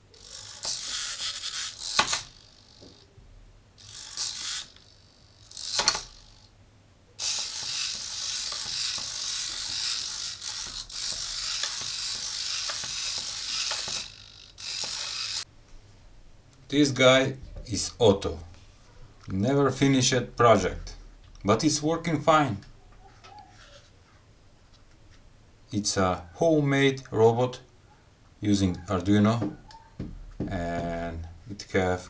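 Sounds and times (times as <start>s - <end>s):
servo motors whirring: 0.0s - 3.1s, 3.8s - 6.5s, 7.2s - 15.5s
sharp clicks: 1.8s - 3.0s.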